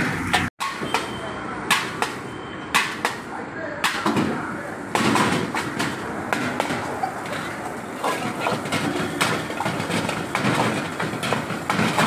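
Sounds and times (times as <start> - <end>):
ladle clanking against a wok: 5.1 - 12.0.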